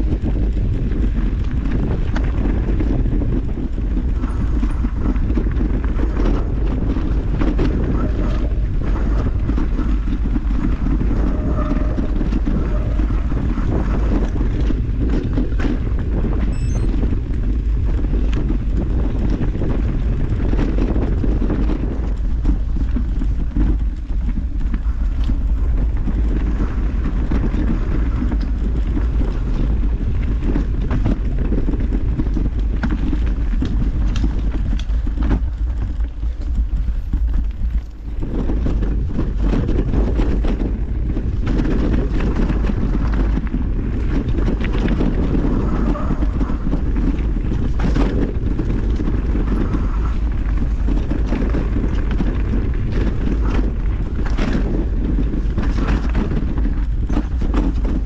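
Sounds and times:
mountain bike rolling and rattling: 0:00.0 - 0:58.0
wind buffeting microphone: 0:00.0 - 0:58.0
bike knocking over rough ground: 0:12.2 - 0:58.0.

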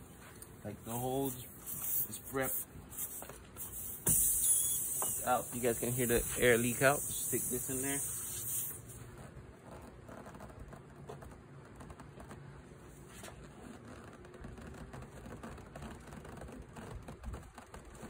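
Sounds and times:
air hissing from tire: 0:00.9 - 0:09.0
small clicks and rubbing: 0:08.9 - 0:18.0.

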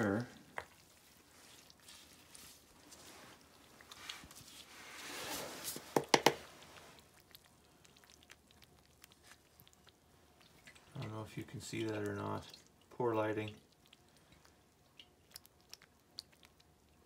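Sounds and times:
wet grain squelching and sloshing: 0:00.0 - 0:17.0.

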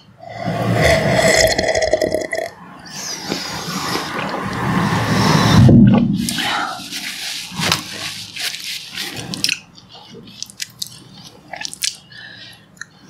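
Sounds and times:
person sipping and swallowing tea: 0:00.2 - 0:04.3.

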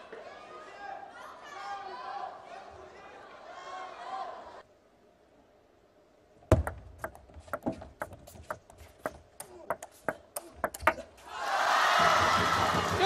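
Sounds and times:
crowd noise: 0:00.0 - 0:04.7, 0:10.5 - 0:13.0
table tennis ball hitting paddles: 0:06.4 - 0:11.3, 0:12.0 - 0:13.0.

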